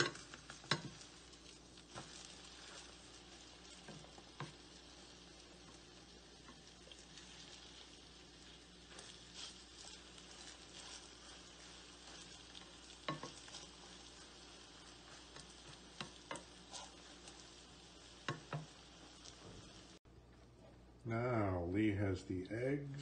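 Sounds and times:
spatula scraping pan: 0.0s - 19.5s
egg sizzling in frying pan: 0.0s - 20.0s
spatula knocking on pan: 18.2s - 18.8s.

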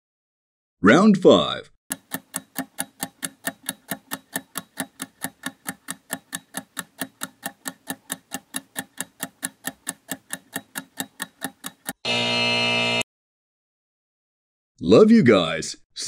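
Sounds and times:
clock-like ticking: 1.9s - 12.0s.

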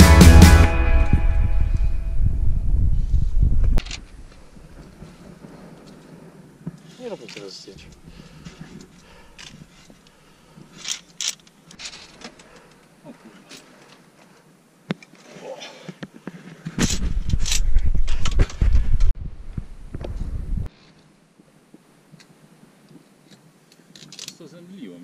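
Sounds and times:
loud low rumble: 0.0s - 3.8s
carabiners clicking on steel cable: 10.7s - 12.8s, 23.9s - 24.4s.

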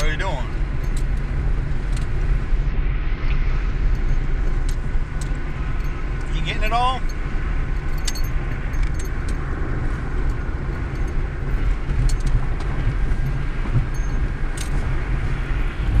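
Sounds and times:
road noise rumble: 0.0s - 16.0s
wind buffeting in car: 0.0s - 16.0s.

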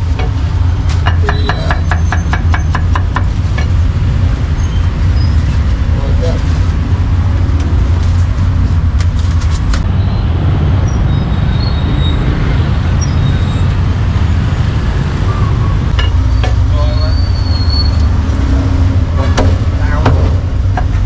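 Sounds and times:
street traffic rumble: 0.0s - 21.0s
sharp knocks: 19.3s - 21.0s.

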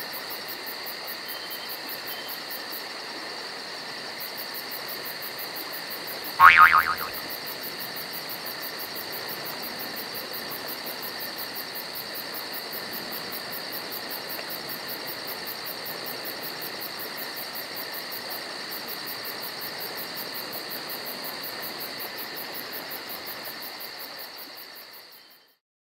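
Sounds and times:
fast pulsing insect chirr: 6.4s - 7.1s
insect trilling: 6.4s - 7.1s.

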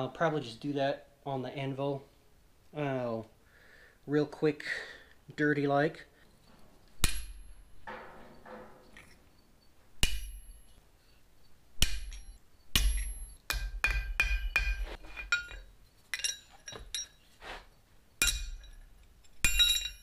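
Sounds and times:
hammer ringing on anvil: 10.0s - 10.7s, 11.8s - 15.6s, 18.2s - 18.8s, 19.4s - 20.0s.

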